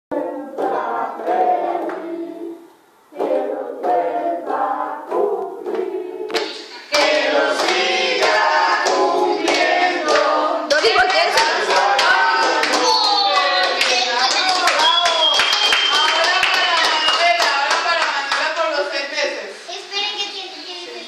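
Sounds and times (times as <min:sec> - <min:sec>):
group singing birthday song: 0:00.1 - 0:19.1
people clapping in time: 0:06.4 - 0:18.6.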